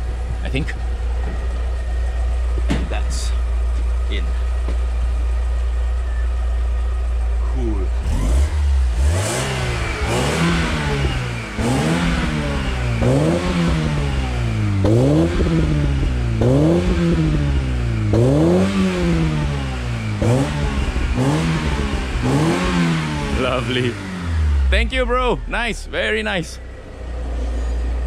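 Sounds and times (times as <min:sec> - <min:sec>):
car engine revving: 0:00.0 - 0:28.0.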